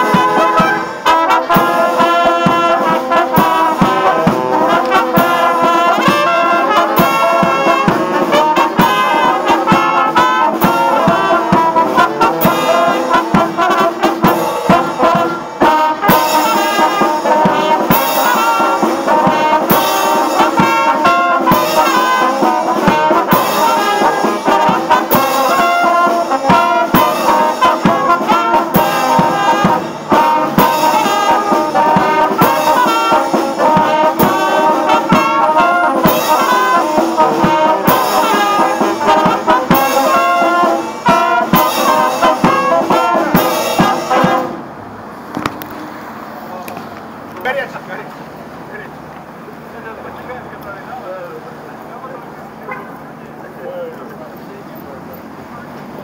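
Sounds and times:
steady drum beat: 0.0 - 44.8
brass band playing jazzy tune: 0.0 - 46.6, 47.2 - 54.9.

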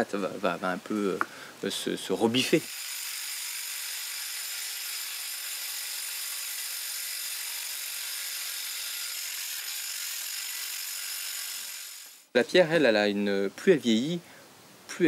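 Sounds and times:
power tool grinding stone: 2.4 - 12.3.

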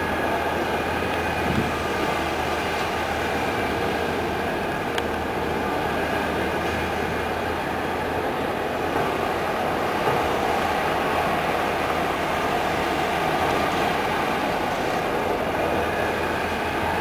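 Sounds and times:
excavator diesel engine running: 0.0 - 17.0.

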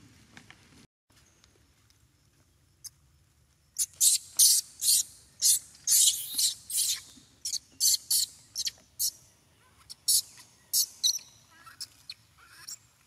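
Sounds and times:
baby monkey screaming: 3.8 - 9.1, 9.8 - 12.8.

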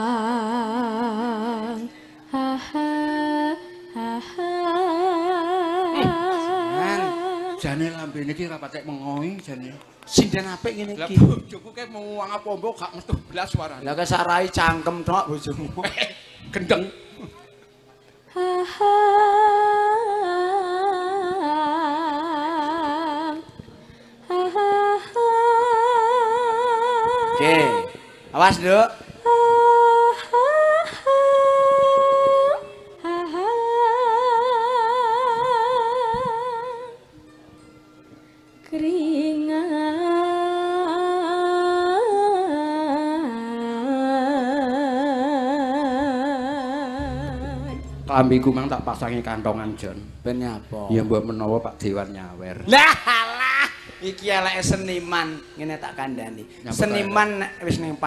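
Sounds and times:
woman singing solo: 0.0 - 7.6
woman singing with wavering vibrato: 0.0 - 7.9, 18.3 - 28.3, 29.0 - 37.3, 38.6 - 50.3.

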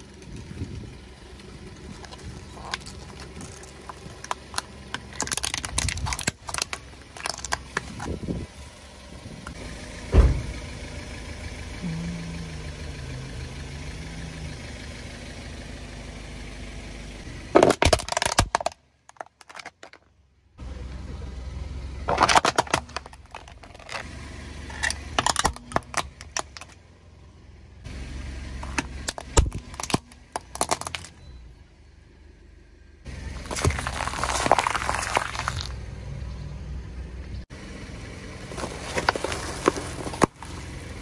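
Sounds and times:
plastic crackling under tyre: 0.0 - 8.5, 17.5 - 20.1, 22.1 - 26.8, 28.6 - 31.2, 33.2 - 35.8, 38.4 - 41.0
car engine idling: 0.0 - 41.0.

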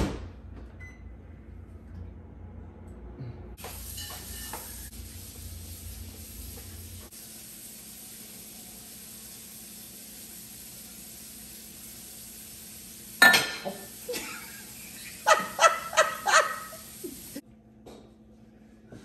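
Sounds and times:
woman laughing: 13.7 - 17.4.

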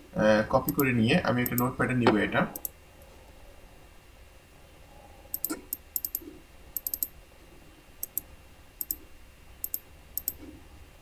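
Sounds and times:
computer mouse clicking: 0.6 - 1.7, 2.6 - 2.8, 5.3 - 7.1, 8.0 - 9.0, 9.6 - 10.5.

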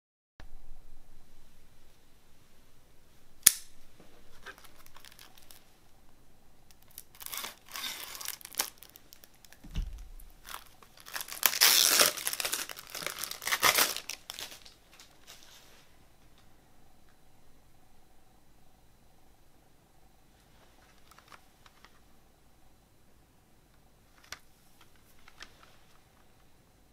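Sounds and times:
sharp click: 3.4 - 3.8
cellophane crinkling: 4.3 - 5.7, 6.7 - 15.8.

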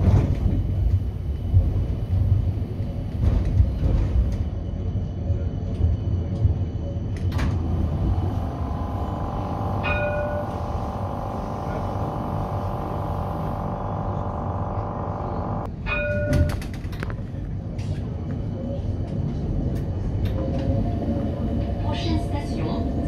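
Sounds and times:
tram rumbling on track: 0.0 - 23.0
humming ring: 7.4 - 16.1.

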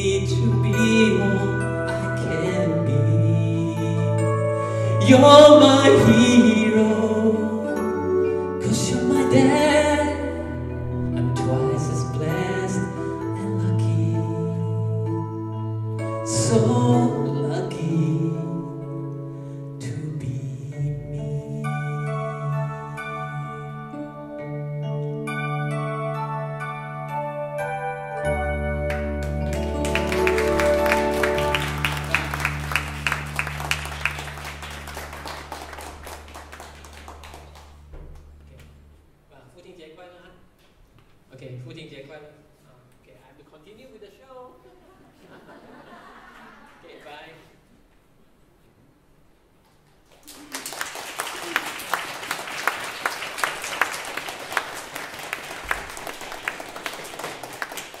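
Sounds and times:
keyboard chord: 0.0 - 39.1
audience clapping: 28.9 - 38.3, 49.8 - 58.0
small crowd applauding: 28.9 - 38.3, 49.8 - 58.0.

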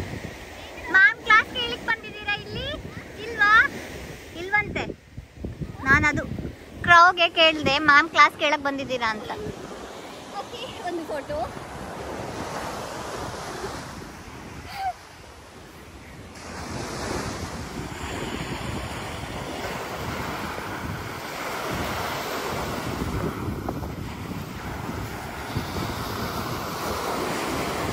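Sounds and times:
waves breaking on sandy shore: 0.0 - 27.9
wind rumbling on microphone: 0.0 - 27.9.

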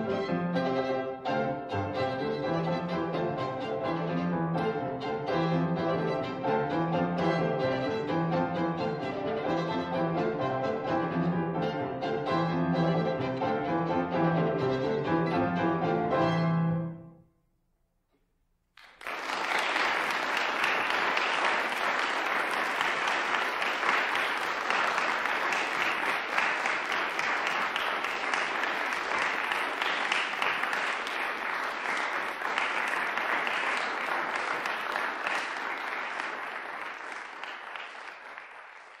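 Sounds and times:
audience applauding: 18.8 - 39.0.

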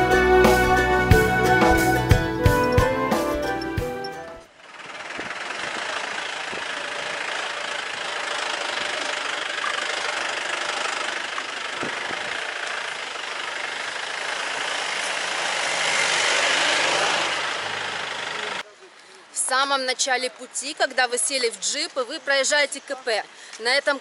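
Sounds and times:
car engine running: 0.0 - 18.6
road and wind noise: 0.0 - 24.0.

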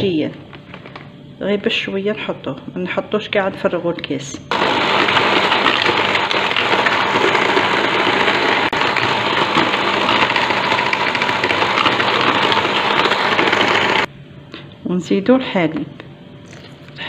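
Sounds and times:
electric hand mixer whisking: 4.5 - 14.1.

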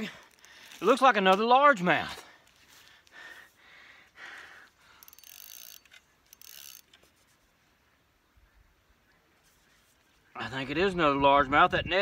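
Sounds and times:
fishing tackle rustling and clicking: 0.0 - 1.6, 2.4 - 3.2, 4.7 - 7.6.

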